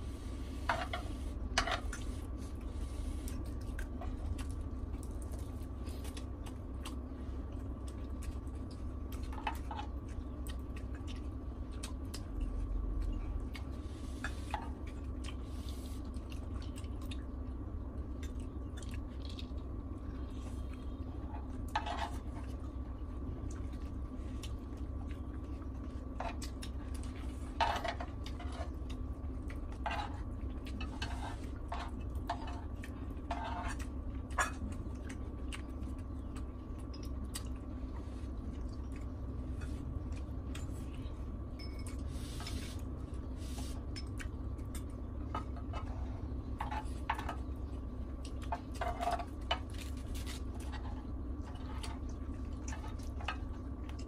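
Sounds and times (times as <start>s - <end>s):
steady low hum: 0.0s - 54.0s
utensils scraping a grill pan: 33.3s - 33.8s.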